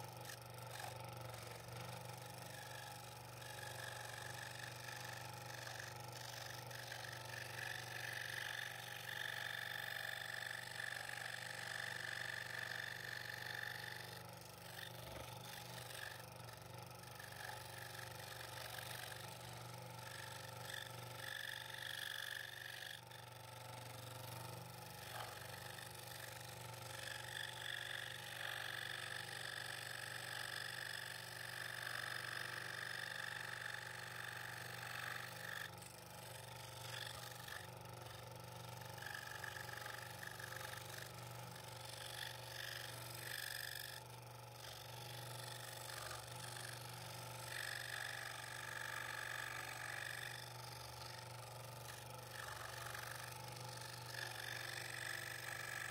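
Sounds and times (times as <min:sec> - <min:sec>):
scroll saw cutting wood: 0:00.0 - 0:55.9.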